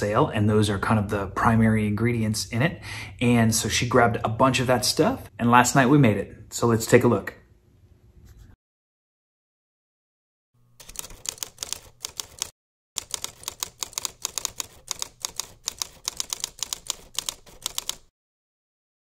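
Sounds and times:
typewriter key clacks: 0:10.8 - 0:18.1.

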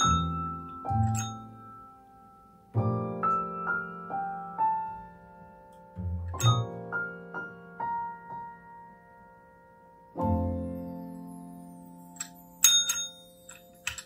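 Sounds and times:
gentle piano music: 0:00.0 - 0:14.0
call bell ding: 0:06.4 - 0:06.8, 0:12.2 - 0:14.0.

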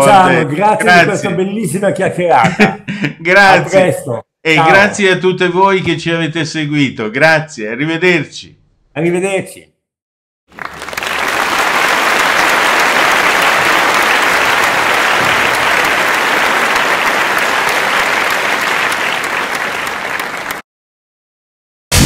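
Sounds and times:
audience applause: 0:10.5 - 0:20.6.

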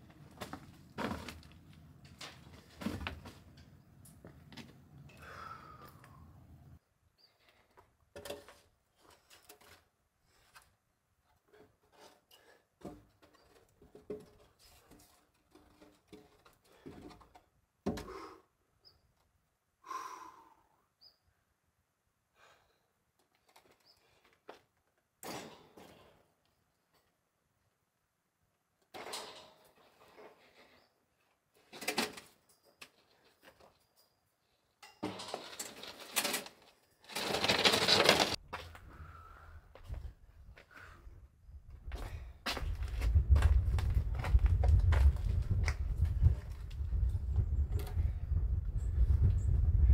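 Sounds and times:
bird chirping: 0:18.8 - 0:19.2, 0:20.9 - 0:21.4.

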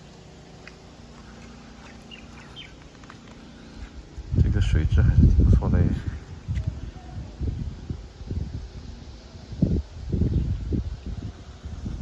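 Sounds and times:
wind buffeting microphone: 0:03.7 - 0:12.0.

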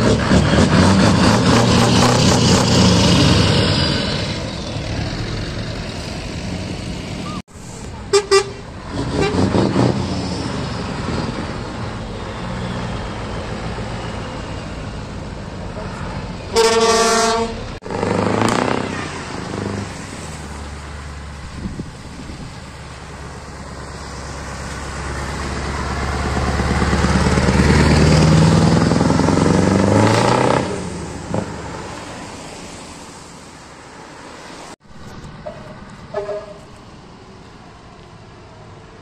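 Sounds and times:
diesel truck driving past: 0:00.0 - 0:39.0
truck horn toots: 0:08.1 - 0:09.8, 0:16.5 - 0:19.1, 0:35.4 - 0:36.7.

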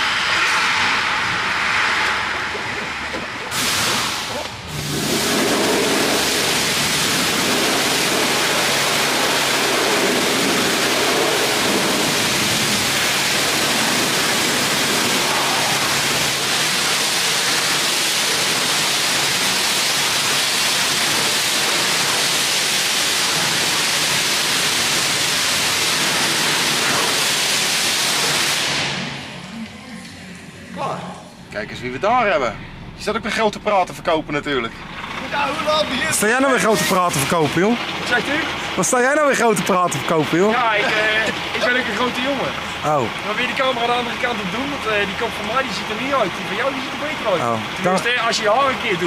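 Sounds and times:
low hum: 0:00.0 - 0:05.0, 0:28.9 - 0:36.2
pressure washer spraying water: 0:00.0 - 0:29.4, 0:35.3 - 0:49.0.

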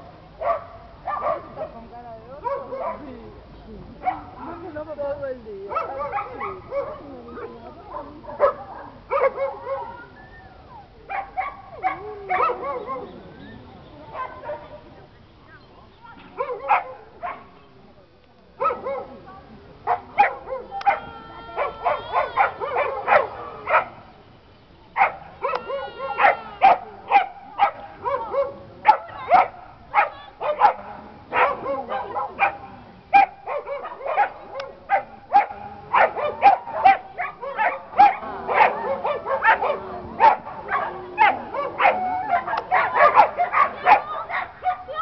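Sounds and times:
dog barking: 0:00.4 - 0:01.8, 0:02.4 - 0:03.1, 0:04.0 - 0:04.6, 0:05.7 - 0:10.1, 0:11.1 - 0:13.1, 0:14.1 - 0:14.8, 0:16.4 - 0:17.5, 0:18.6 - 0:19.2, 0:19.9 - 0:21.0, 0:21.6 - 0:24.0, 0:25.0 - 0:45.0.

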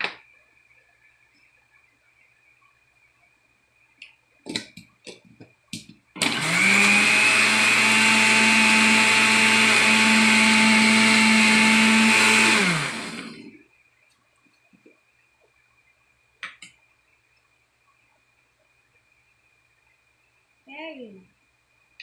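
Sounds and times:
blender motor running: 0:06.2 - 0:13.5.

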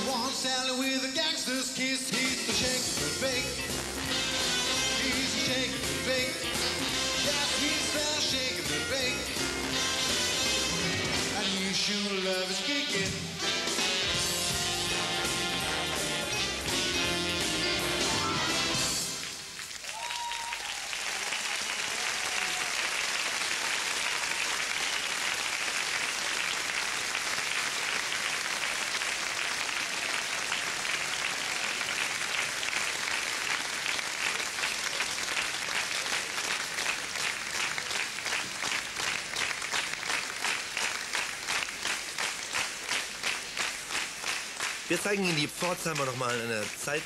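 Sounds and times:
rhythmic clapping in unison: 0:02.1 - 0:47.0
audience applauding: 0:14.4 - 0:47.0.

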